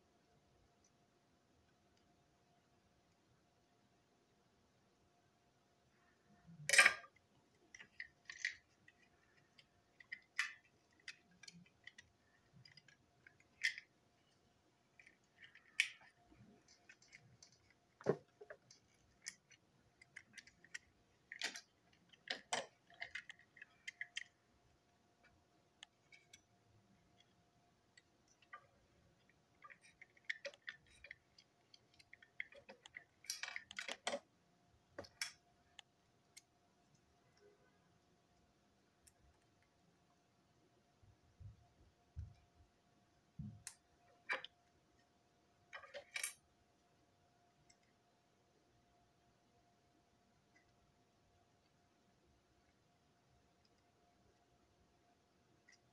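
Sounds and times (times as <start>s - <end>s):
plastic parts clicking and tapping: 6.6s - 24.5s, 28.0s - 34.3s, 45.7s - 46.4s.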